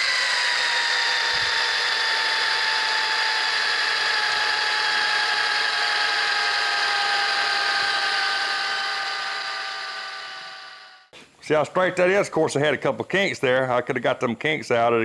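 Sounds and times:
electric drill motor whine: 0:00.0 - 0:11.1.

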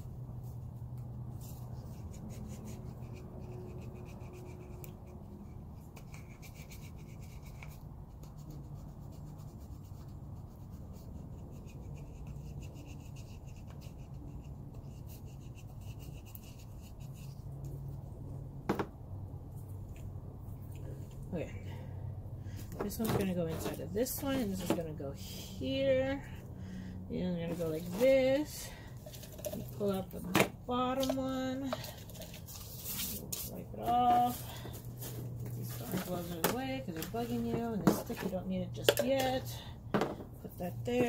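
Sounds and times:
low steady hum: 0:00.0 - 0:41.0
rubbing and scratching handling noises: 0:22.6 - 0:26.2, 0:27.2 - 0:41.0.

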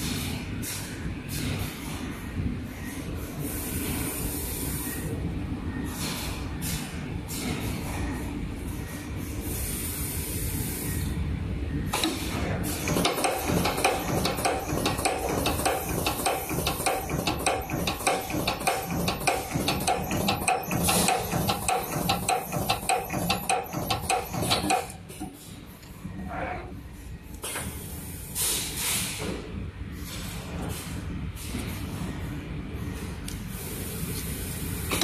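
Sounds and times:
air hissing: 0:09.4 - 0:11.1.

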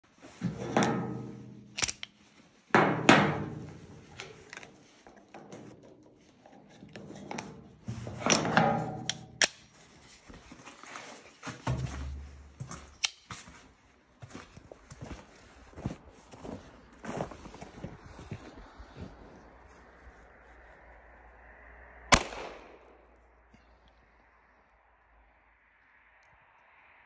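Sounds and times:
metal clanks on steel table: 0:00.4 - 0:01.6
pistol action clicks: 0:01.8 - 0:02.2.

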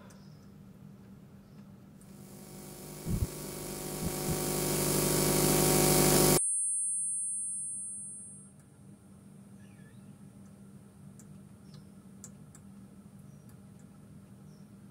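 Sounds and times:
tonal hiss riser: 0:02.1 - 0:06.4
high-pitched ringing tone: 0:02.2 - 0:08.6.

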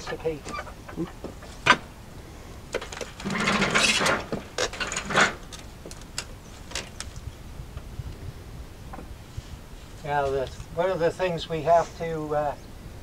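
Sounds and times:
log scraping on steel bed: 0:02.7 - 0:07.0.

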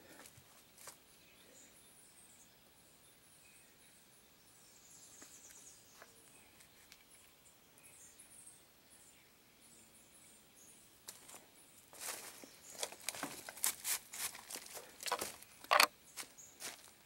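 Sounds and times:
brushing through undergrowth: 0:11.1 - 0:16.9
footsteps crunching dry leaves: 0:11.1 - 0:17.0.

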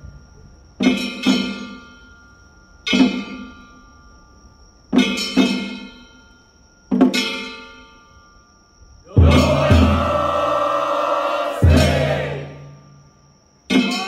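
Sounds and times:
drum hits: 0:09.2 - 0:10.7, 0:11.6 - 0:12.6.

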